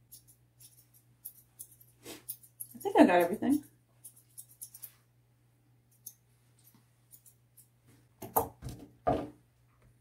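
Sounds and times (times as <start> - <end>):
scissors snipping fur: 0.1 - 4.9.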